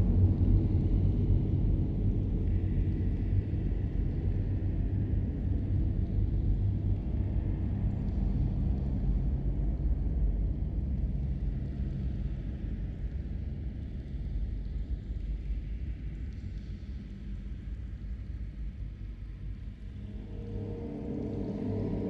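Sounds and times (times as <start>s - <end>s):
low rumble: 19.5s - 22.0s.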